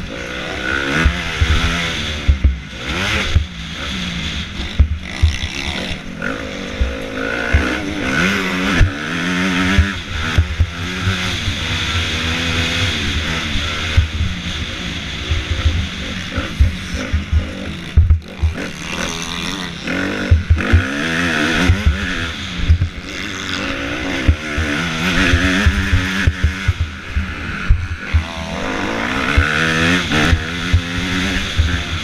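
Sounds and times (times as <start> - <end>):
motocross bike engine revving: 0.0 - 32.0
low thumps: 4.8 - 5.6, 16.5 - 18.6, 20.3 - 20.9.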